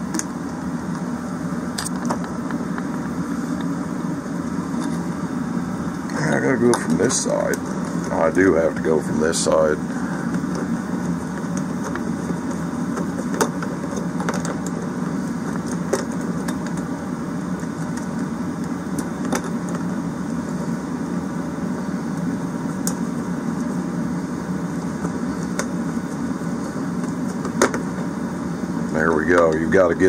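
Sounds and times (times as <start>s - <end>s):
machine hum: 0.0s - 30.0s.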